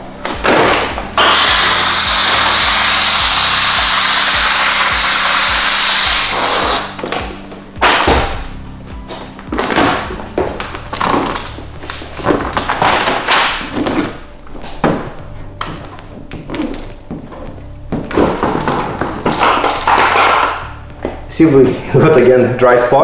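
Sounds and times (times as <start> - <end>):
loud steady hiss: 0.0 - 8.9
background music: 0.0 - 23.0.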